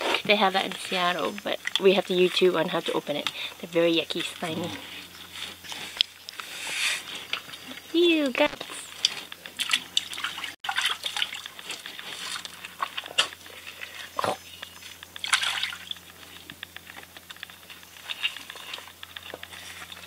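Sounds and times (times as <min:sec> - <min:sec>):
faint low hum: 0:00.0 - 0:20.0
water splashing and dripping: 0:09.4 - 0:13.0, 0:15.2 - 0:16.0.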